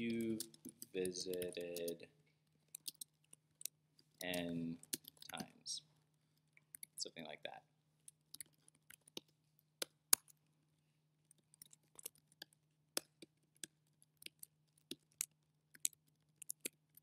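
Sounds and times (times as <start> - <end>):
keyboard keystrokes: 0.4 - 1.9.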